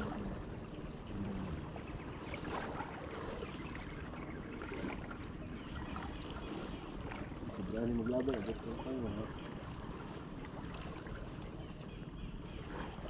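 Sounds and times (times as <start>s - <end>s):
water washing: 0.0s - 9.7s.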